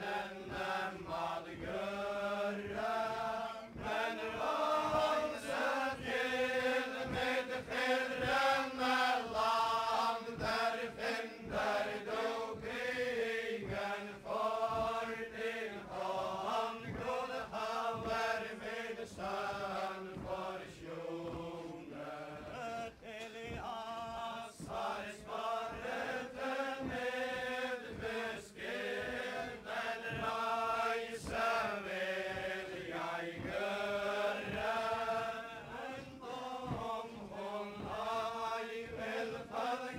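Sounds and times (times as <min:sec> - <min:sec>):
group chanting unaccompanied song: 0:00.0 - 0:39.9.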